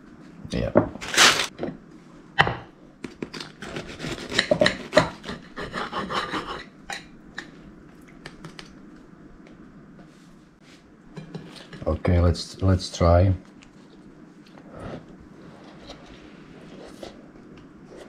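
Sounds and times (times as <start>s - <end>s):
knife sawing and scraping: 3.6s - 6.7s.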